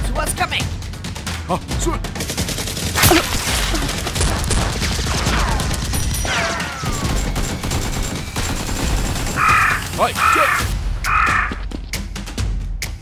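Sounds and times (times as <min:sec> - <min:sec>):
rapid gunfire sound effects: 0:01.8 - 0:11.6.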